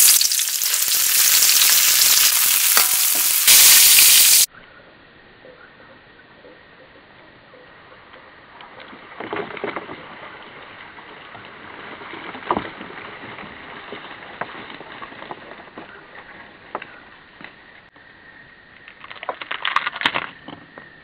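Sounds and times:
fried insects clattering onto board: 0:00.0 - 0:04.5.

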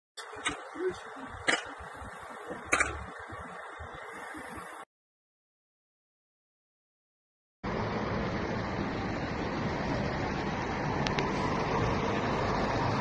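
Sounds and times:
traffic hum: 0:00.2 - 0:04.8, 0:07.6 - 0:13.0
wind: 0:00.2 - 0:04.9, 0:07.6 - 0:13.0.

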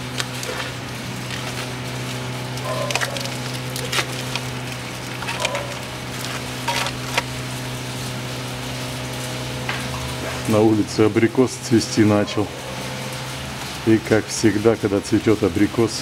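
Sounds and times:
paper crinkling: 0:00.0 - 0:07.5.

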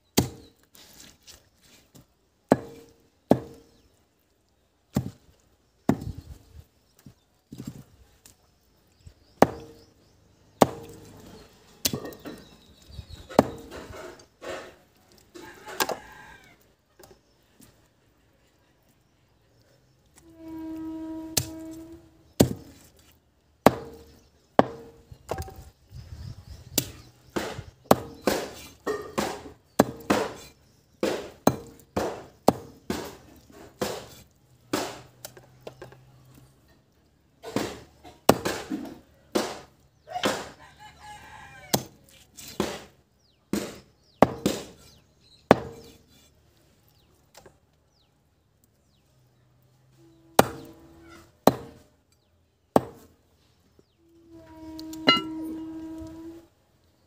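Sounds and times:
knife chopping on wooden block: 0:26.8 - 0:33.2, 0:45.5 - 0:46.0, 0:52.8 - 0:53.1.

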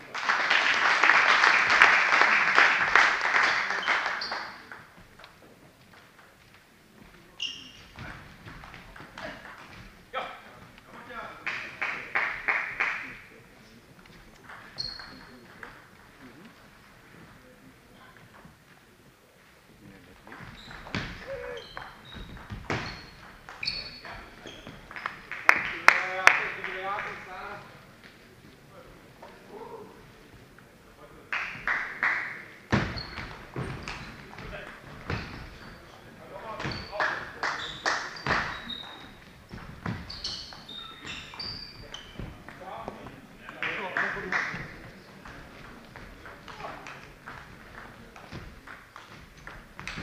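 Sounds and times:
spectators clapping: 0:00.0 - 0:05.0, 0:11.4 - 0:13.4, 0:24.8 - 0:27.4, 0:31.3 - 0:32.6, 0:36.9 - 0:39.0, 0:43.4 - 0:50.0
shoes squeaking on floor: 0:03.7 - 0:11.2, 0:13.6 - 0:16.4, 0:20.2 - 0:25.3, 0:32.7 - 0:43.5, 0:44.5 - 0:50.0
short high squeaks: 0:03.8 - 0:04.6, 0:14.8 - 0:15.4, 0:20.4 - 0:24.8, 0:36.7 - 0:39.2, 0:40.0 - 0:42.2.

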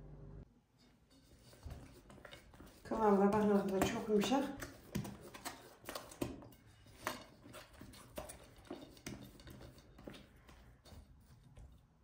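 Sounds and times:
hands kneading soft dough: 0:00.7 - 0:12.0.

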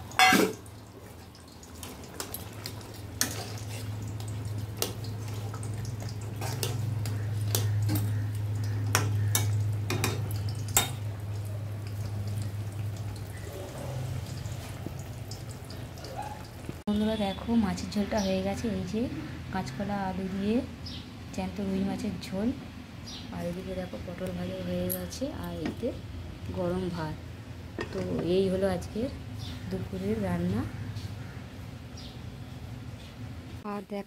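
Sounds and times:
curry simmering at the boil: 0:00.0 - 0:17.4.

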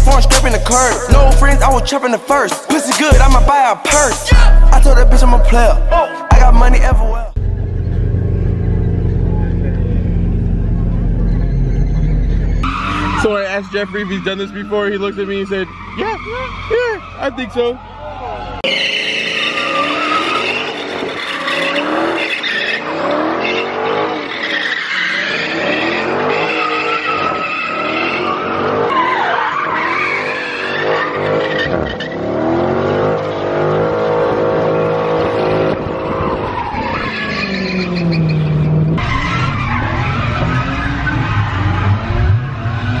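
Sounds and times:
car engine revving: 0:00.0 - 0:43.0
tyres squealing: 0:10.7 - 0:32.4, 0:33.3 - 0:43.0.

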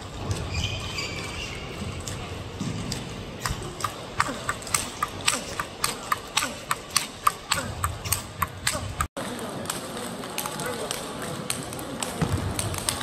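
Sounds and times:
murmur of voices: 0:03.4 - 0:13.0.

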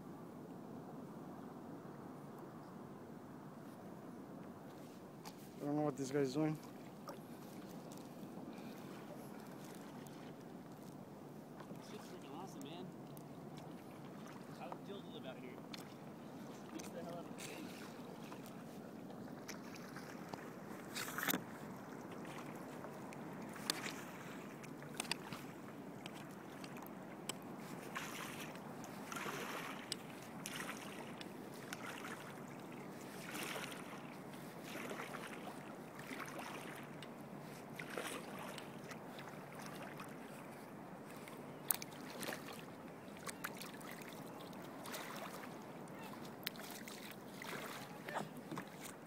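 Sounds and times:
paddle strokes swishing through water: 0:04.6 - 0:05.8, 0:06.4 - 0:49.0
water washing against hull: 0:15.6 - 0:49.0
drips or light clicks: 0:24.6 - 0:27.4, 0:41.6 - 0:42.3.

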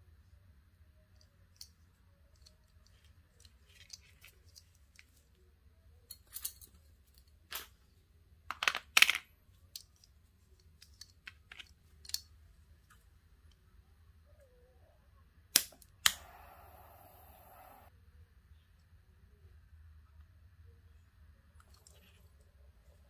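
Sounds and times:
light clicks and taps of handling: 0:08.5 - 0:13.6.

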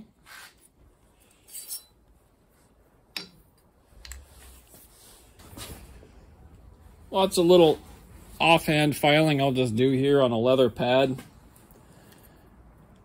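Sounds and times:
knife and small parts clinking on steel: 0:01.2 - 0:02.0.

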